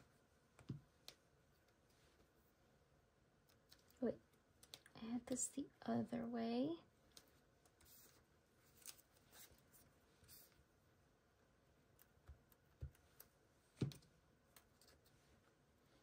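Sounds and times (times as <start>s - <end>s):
paper rustling: 7.8s - 10.6s.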